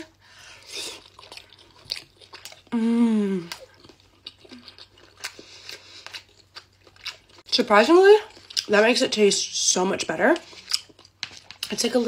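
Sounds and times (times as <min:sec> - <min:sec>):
wet chewing and mouth clicks: 0:00.6 - 0:02.8, 0:03.4 - 0:09.0, 0:10.2 - 0:11.9
person humming mmm: 0:02.7 - 0:03.7.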